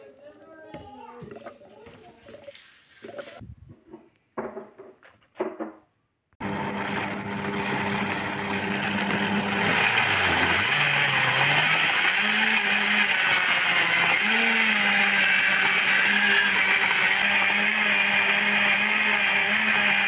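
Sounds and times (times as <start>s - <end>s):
blender running: 6.4s - 20.0s.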